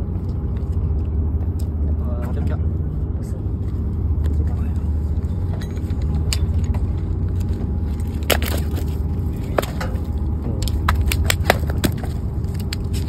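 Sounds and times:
steady low rumble: 0.0 - 13.0
fish flapping on paving stones: 7.9 - 13.0.

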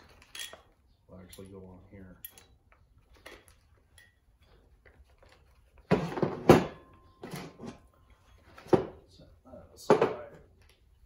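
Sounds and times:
small metal parts clicking and clinking: 0.0 - 5.5.

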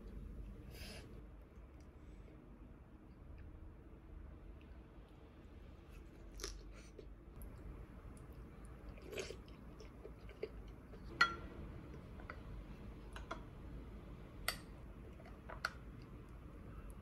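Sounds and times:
person chewing: 5.9 - 11.2.

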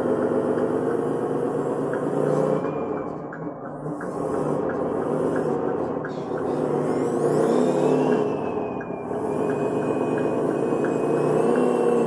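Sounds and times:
toy vehicle motor whirring: 4.0 - 12.0.

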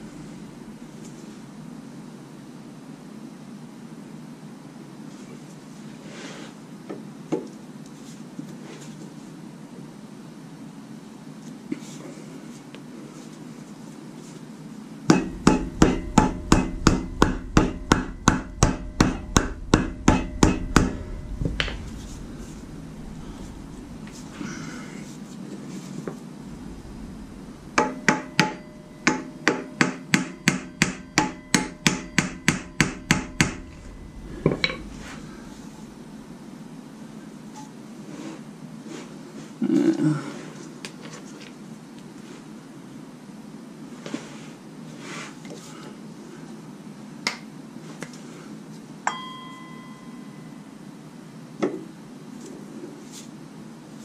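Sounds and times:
low steady hum: 0.0 - 3.5, 15.0 - 38.0, 49.1 - 51.3
dull metal knock: 15.1 - 21.9
hammer striking metal: 15.1 - 24.2, 26.4 - 36.7.

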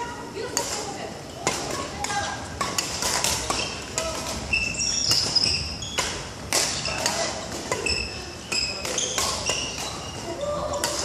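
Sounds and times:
racket hitting shuttlecock: 0.5 - 10.0, 10.7 - 11.0
shoes squeaking on wooden floor: 3.4 - 7.0.

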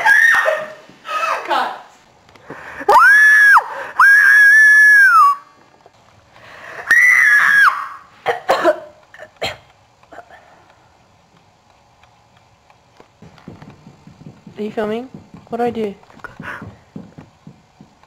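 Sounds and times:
girl screaming: 0.0 - 1.4, 2.9 - 5.5, 6.9 - 8.1.

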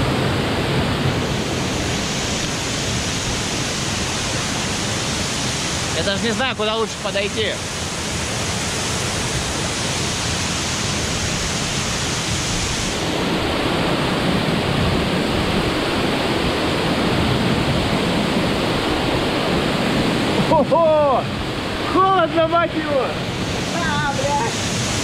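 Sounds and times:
waterfall roaring: 0.0 - 25.0.

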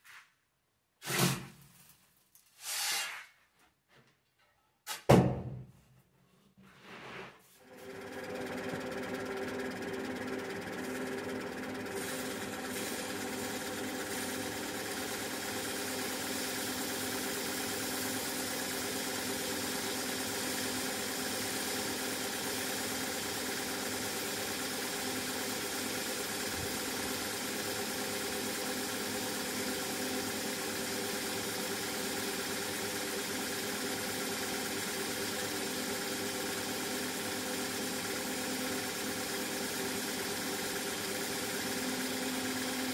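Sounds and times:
grains hissing over sieve: 12.0 - 13.1.

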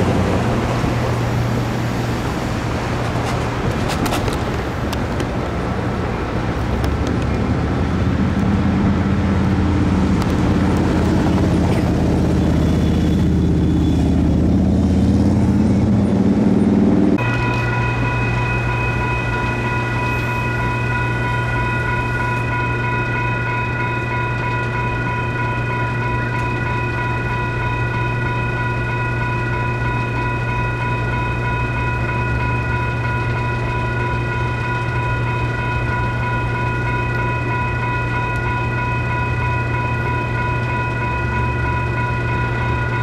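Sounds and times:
electronic crossing bell ringing: 17.2 - 43.0.

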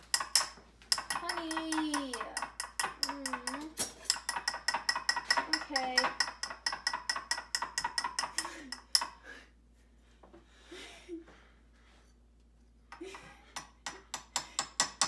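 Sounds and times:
utensils tapping glass jar: 0.0 - 9.2.

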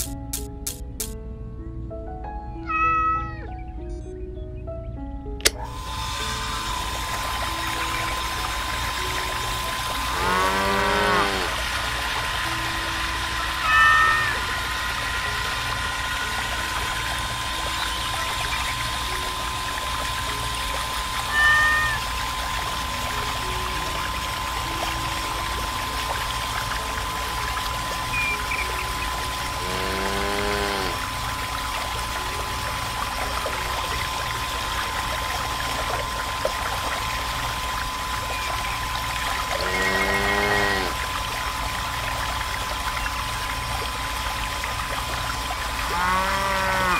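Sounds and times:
water pump whining: 5.4 - 46.9
water splashing into pool: 5.5 - 46.9
short pitched call: 13.6 - 14.4.

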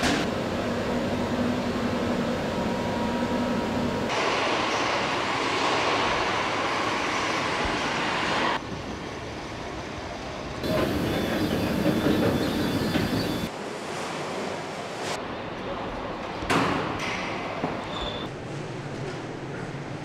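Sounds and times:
machinery hiss and rattle: 10.6 - 13.5.

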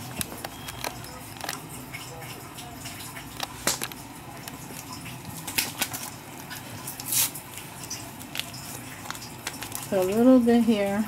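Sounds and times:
seasoning shaker rustling: 4.6 - 11.0.

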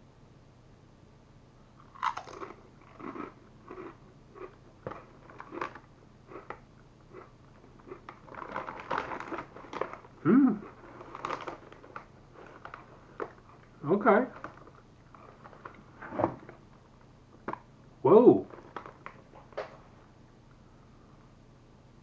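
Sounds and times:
chip bag rustling: 1.8 - 6.5, 7.2 - 16.7, 18.4 - 19.7
chip crunching and chewing: 1.8 - 15.9, 18.5 - 19.5
person humming: 10.2 - 10.7.

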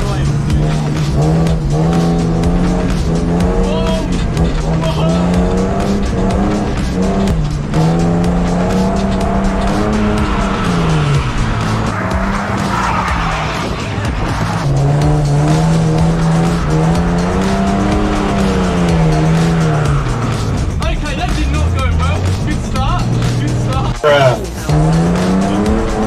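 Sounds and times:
car engine revving hard: 0.0 - 26.0
rushing noise: 8.7 - 20.8.

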